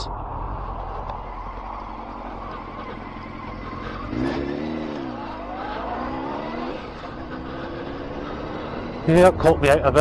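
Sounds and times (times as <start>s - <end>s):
motorcycle engine running: 0.8s - 10.0s.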